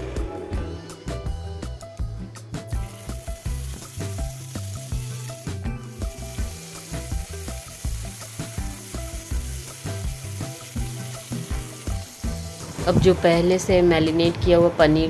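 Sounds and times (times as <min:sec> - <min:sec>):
background music with beat: 0:00.0 - 0:13.4
food sizzling in oil: 0:02.7 - 0:13.4.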